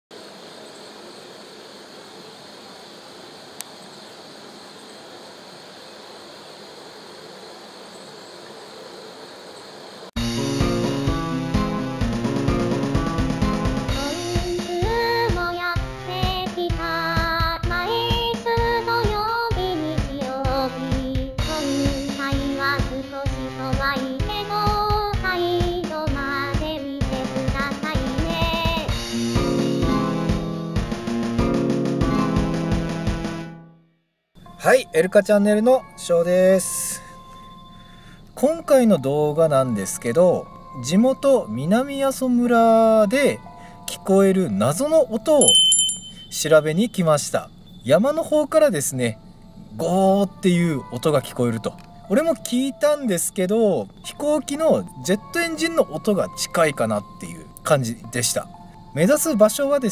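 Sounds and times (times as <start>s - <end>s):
upbeat backing music with drums: 10.2s - 33.6s
background music: 10.2s - 33.8s, 34.4s - 46.8s, 48.6s - 59.9s
person singing: 13.9s - 28.9s.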